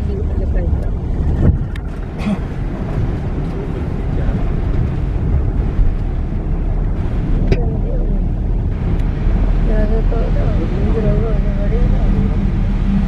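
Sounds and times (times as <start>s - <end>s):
bus engine and wheels rumbling: 0.0s - 13.0s.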